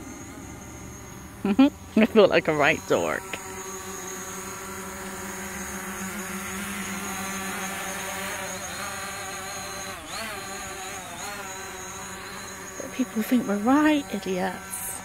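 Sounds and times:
drone propellers buzzing: 0.0 - 15.0.

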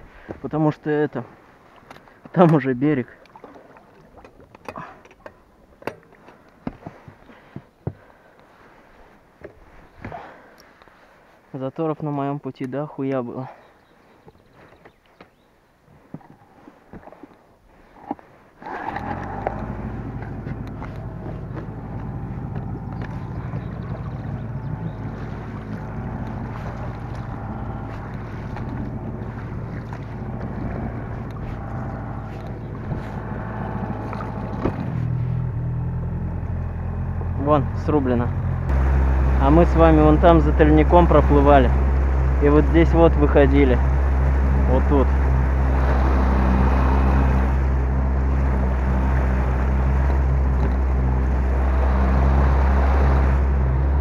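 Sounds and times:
water rushing along hull: 0.0 - 11.5, 16.0 - 54.0
outboard motor running: 18.0 - 54.0.

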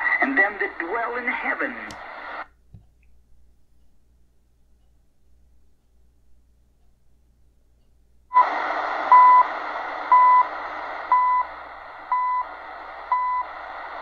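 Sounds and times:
radio static hiss: 0.0 - 2.5, 8.3 - 14.0
time signal beeps: 9.1 - 9.5, 10.1 - 10.5, 11.1 - 11.5, 12.1 - 12.5, 13.1 - 13.5.

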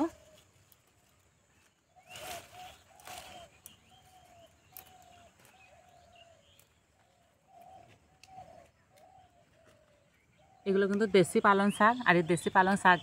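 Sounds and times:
small birds chirping: 0.0 - 13.0
leaves snapping when picked: 2.0 - 5.7.

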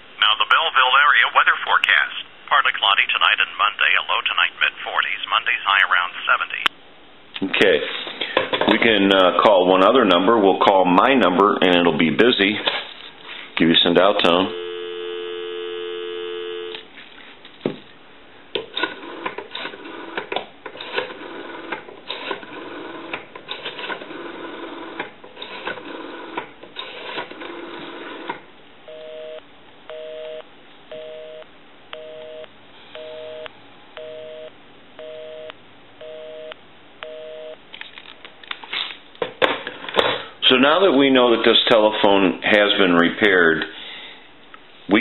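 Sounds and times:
busy signal beeps: 14.5 - 16.8, 28.9 - 31.4, 32.0 - 37.6
telephone dial tone: 14.5 - 16.8, 28.9 - 31.4, 32.0 - 37.6.

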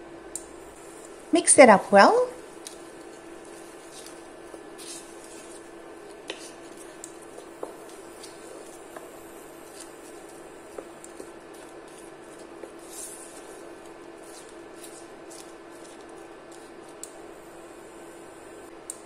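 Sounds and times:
steady hum: 0.0 - 19.0
small crackles: 2.4 - 17.3
wooden spoon scraping pan: 2.6 - 10.4.

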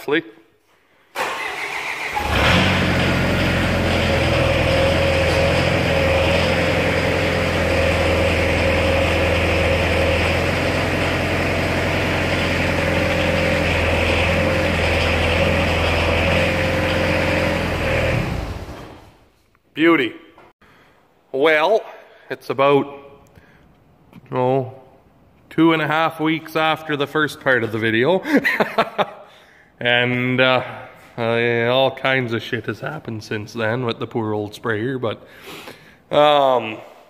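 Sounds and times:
sprayer engine running: 2.4 - 19.0.

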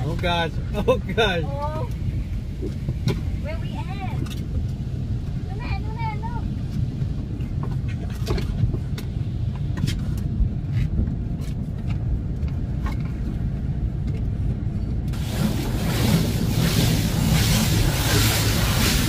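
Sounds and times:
low rumble: 0.0 - 19.0
car wash rushing hiss: 15.1 - 19.0.

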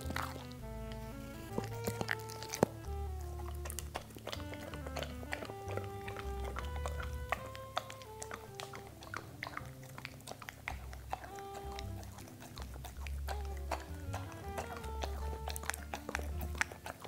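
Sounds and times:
background music: 0.0 - 17.0
crisp bite clicks: 0.0 - 17.0
dog chewing and lip smacking: 0.0 - 17.0.

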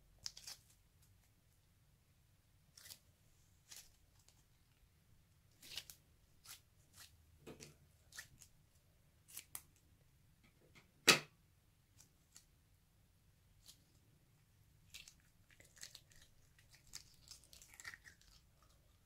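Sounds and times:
squishy sticky slime crackles: 14.8 - 19.0.

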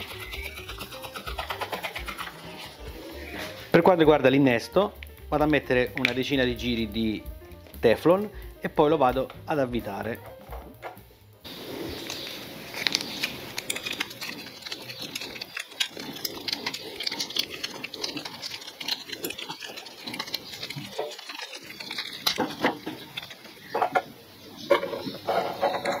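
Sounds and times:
tape pulled off roll crackling: 10.2 - 26.0.

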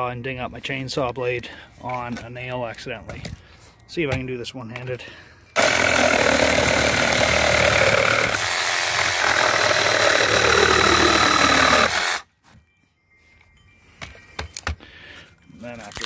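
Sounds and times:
reciprocating saw cutting wood: 5.6 - 12.2.

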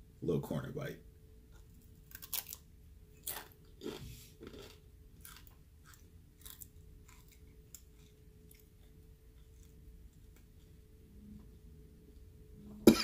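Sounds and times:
chewing crunchy chip: 2.0 - 2.6, 3.2 - 10.8.

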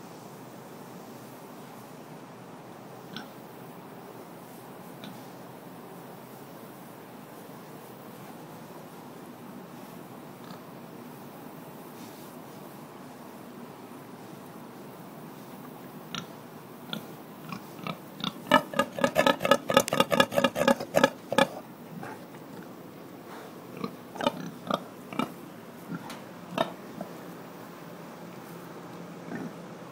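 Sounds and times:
pig grunting: 16.9 - 22.7, 23.3 - 27.2, 29.3 - 29.6.

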